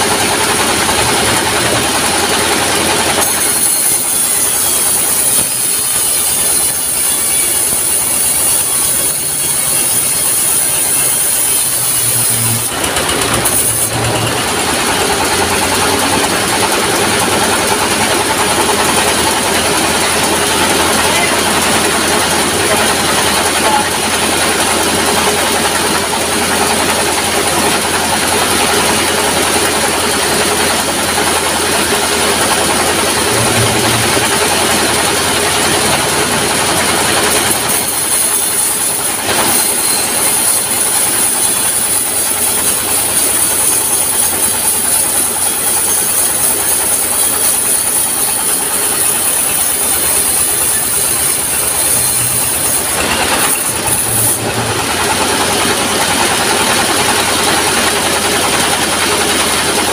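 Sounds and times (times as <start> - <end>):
band saw ripping wood: 37.2 - 54.9.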